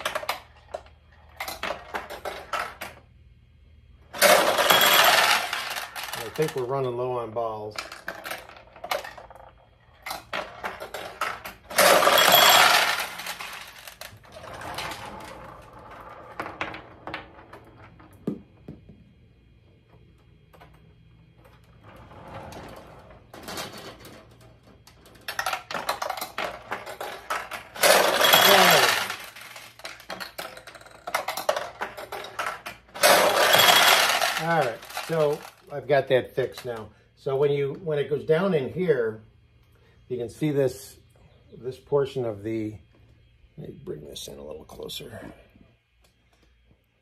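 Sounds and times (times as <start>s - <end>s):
steel balls clattering: 4.1s - 18.1s, 23.1s - 36.9s.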